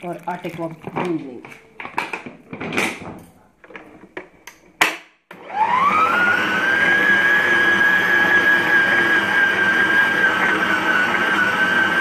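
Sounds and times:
stand mixer motor whine: 5.3 - 12.0.

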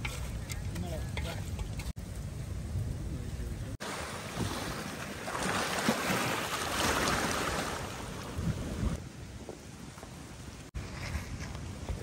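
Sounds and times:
wind on microphone: 0.0 - 12.0
small waves washing on shore: 3.8 - 9.0.

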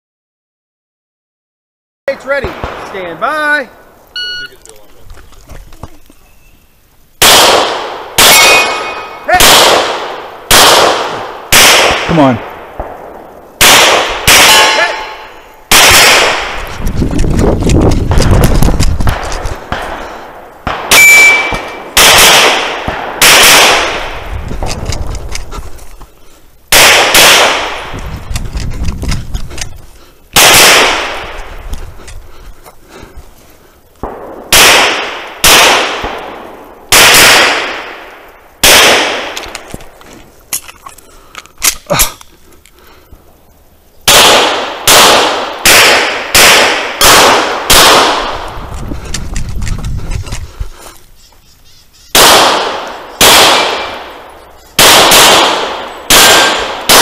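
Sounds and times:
pistol shots: 2.3 - 3.2, 7.2 - 16.6, 18.1 - 25.2, 26.7 - 28.0, 30.4 - 31.5, 34.0 - 39.7, 44.1 - 48.5, 52.1 - 57.0
steel targets ringing: 21.0 - 22.0.

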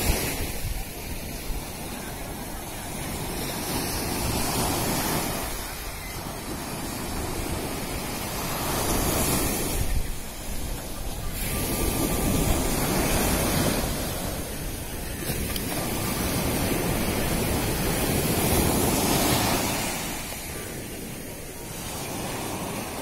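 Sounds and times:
waves washing on sand: 0.0 - 23.0
wind on microphone: 0.0 - 23.0.

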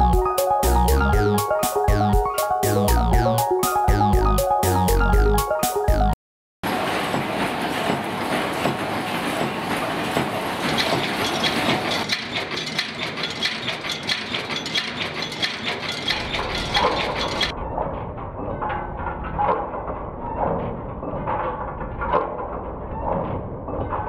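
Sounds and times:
machine rhythmic mechanical clatter: 6.6 - 24.0
heavy machine knocks: 6.7 - 24.0.

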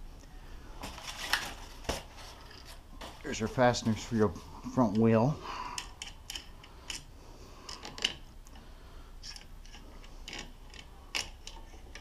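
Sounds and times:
small metal parts clicking: 5.7 - 7.1, 9.2 - 12.0.

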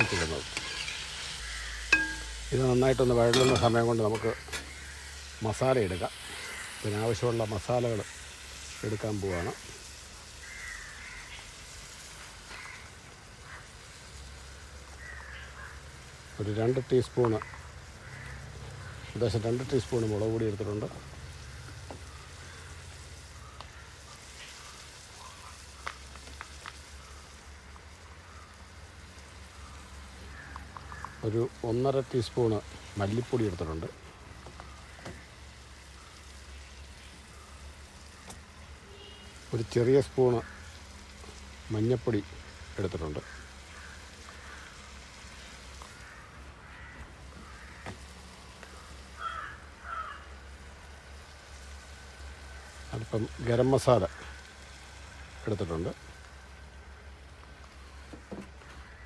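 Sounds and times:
bird calling harshly: 0.0 - 7.1, 10.2 - 11.6, 12.2 - 13.8, 14.5 - 16.4, 34.6 - 39.5, 43.2 - 50.6
vegetables sizzling in pan: 0.0 - 59.0.

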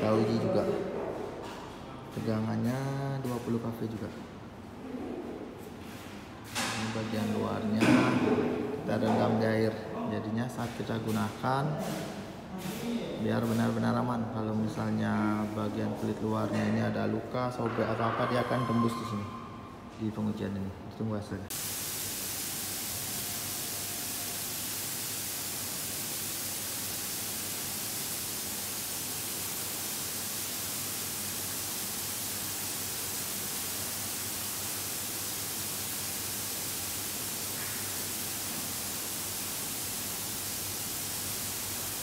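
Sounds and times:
electrical corona discharge hiss: 21.5 - 42.0.

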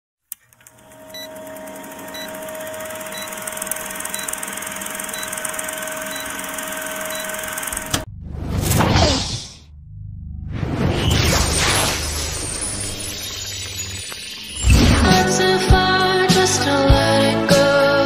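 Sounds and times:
film projector whirring and clattering: 0.3 - 8.1
rocket launch whoosh: 10.5 - 13.0.

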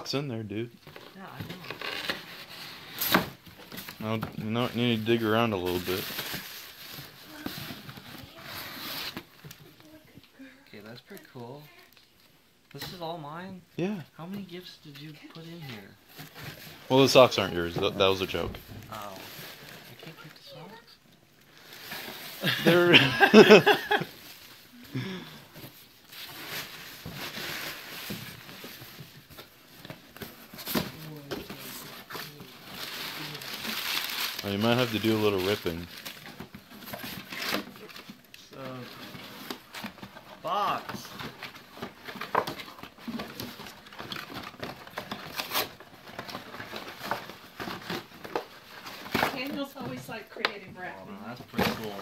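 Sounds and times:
cardboard and paper rustling: 0.8 - 12.0, 14.3 - 52.0
paperboard tearing and crinkling: 30.2 - 38.0, 41.0 - 49.5.

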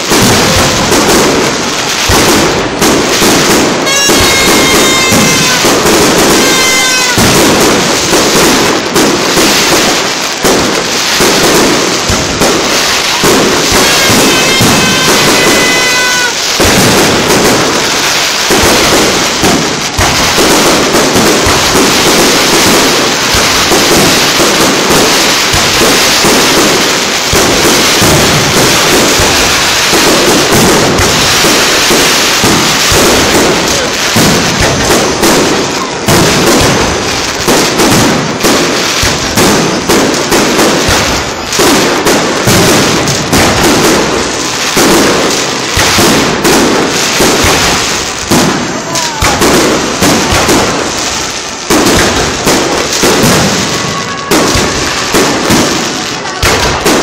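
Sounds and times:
fireworks bursting and crackling: 0.0 - 57.0.

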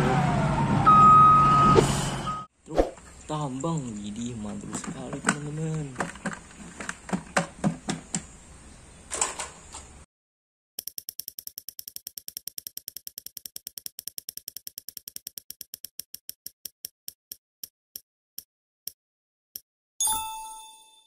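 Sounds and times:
spinning wheel ticking: 10.8 - 16.8
bright chime: 20.0 - 21.0.

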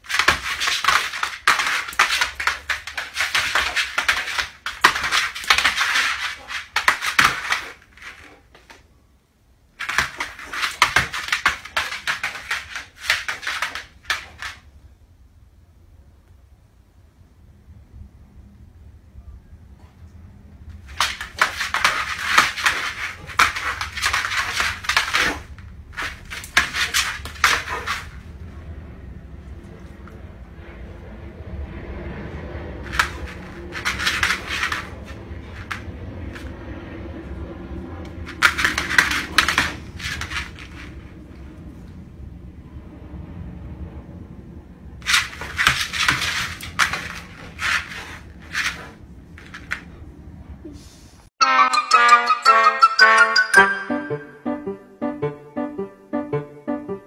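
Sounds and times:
dog claws scraping floor: 0.0 - 8.8, 9.8 - 14.7, 20.8 - 28.2, 32.8 - 36.6, 38.2 - 41.1, 45.0 - 50.0
dog claws scrabbling on laminate: 32.9 - 36.5, 45.0 - 49.8.

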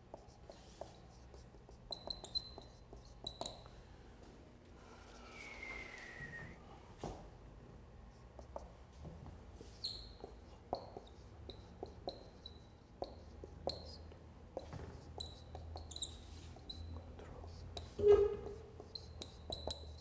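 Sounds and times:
marker squeaking on whiteboard: 0.1 - 3.7, 9.6 - 20.0.

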